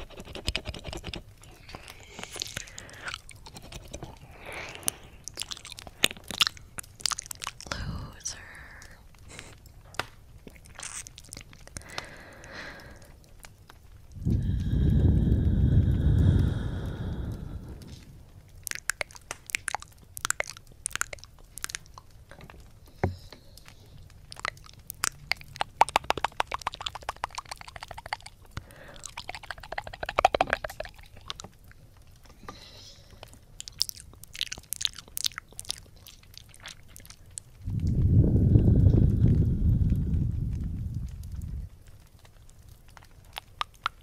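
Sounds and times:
tongue flutter clicks: 0.0s - 7.9s, 14.1s - 22.2s, 22.9s - 31.6s, 42.8s - 44.0s
wet mouth licks and smacks: 0.0s - 44.0s.

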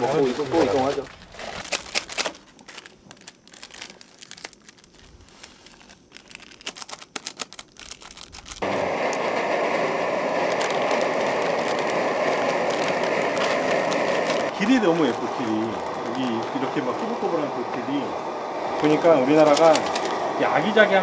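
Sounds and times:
plastic packet crinkling and tearing: 0.2s - 9.3s, 10.4s - 16.7s, 18.8s - 20.3s
pot bubbling: 8.6s - 21.0s.

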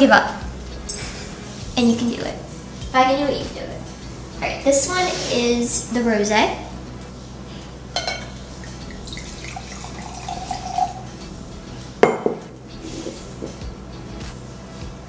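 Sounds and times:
wine pouring into glass: 8.0s - 11.1s
glass knocking on hard surface: 12.0s - 12.4s.

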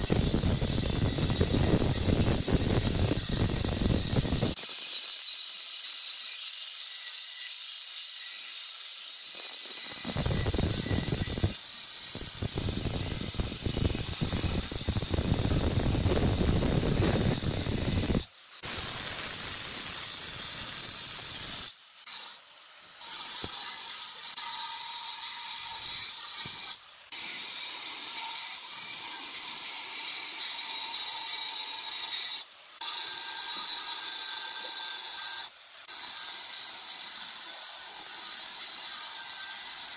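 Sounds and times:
angle grinder grinding stone: 0.0s - 22.4s.

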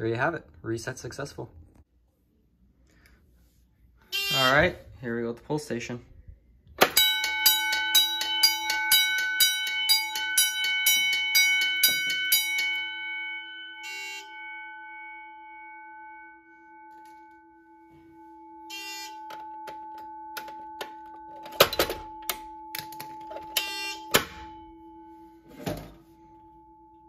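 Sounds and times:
fire alarm bell ringing: 4.2s - 4.7s, 6.8s - 27.0s.

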